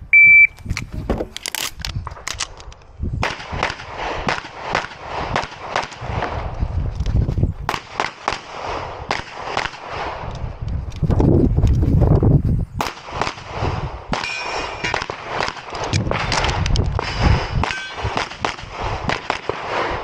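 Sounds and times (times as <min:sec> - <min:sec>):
movement and handling noise: 0:00.5 - 0:03.0.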